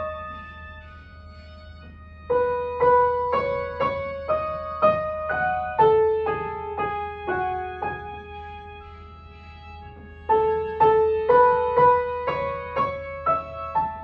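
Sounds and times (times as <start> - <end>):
slow piano melody: 0.0 - 14.0.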